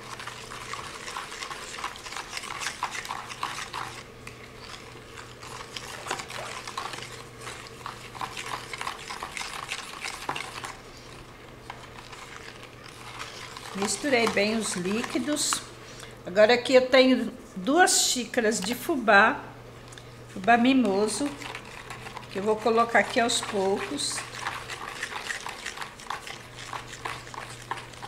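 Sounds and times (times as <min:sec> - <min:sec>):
liquid splashing: 0:00.0 - 0:11.2, 0:11.9 - 0:15.7, 0:20.9 - 0:28.0
spoon scraping plastic bowl: 0:00.0 - 0:15.7, 0:20.4 - 0:28.0.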